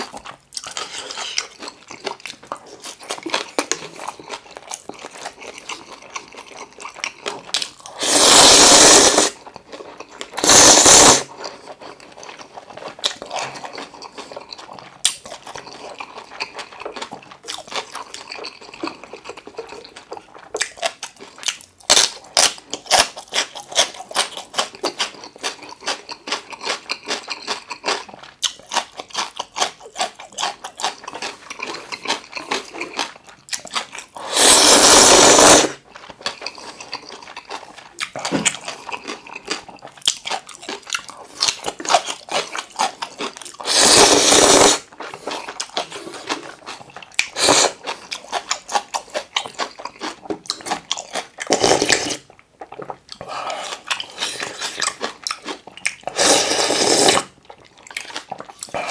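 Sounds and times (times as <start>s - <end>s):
wet chewing: 0.0s - 58.9s
loud noodle slurps: 7.9s - 9.4s, 10.4s - 11.4s, 34.2s - 35.8s, 43.6s - 44.9s, 47.3s - 47.8s, 51.5s - 52.3s, 56.0s - 57.3s.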